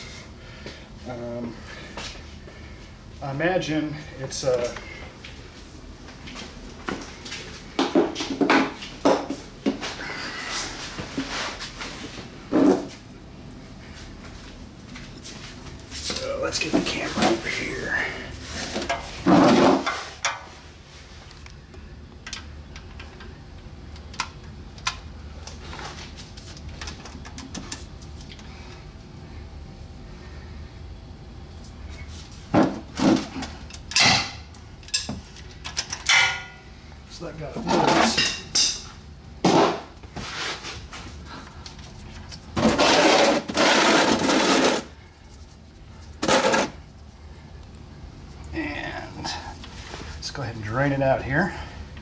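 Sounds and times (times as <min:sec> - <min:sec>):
metal tool scraping: 0:42.6 - 0:44.9.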